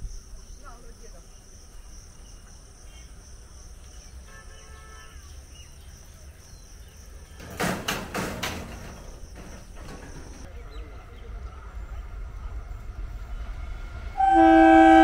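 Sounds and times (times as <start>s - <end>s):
insect buzz: 0.0s - 7.9s
boom barriers knocking: 7.4s - 10.5s.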